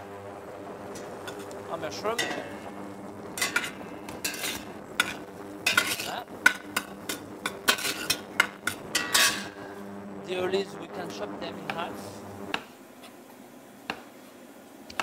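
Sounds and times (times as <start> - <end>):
metal spoon scraping a pot: 3.4 - 9.5.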